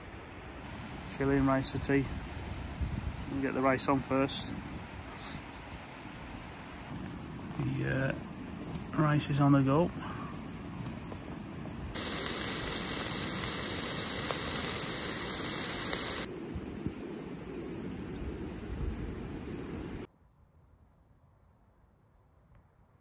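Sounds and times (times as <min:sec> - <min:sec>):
gas stove hissing: 0:00.6 - 0:08.8, 0:10.6 - 0:20.1.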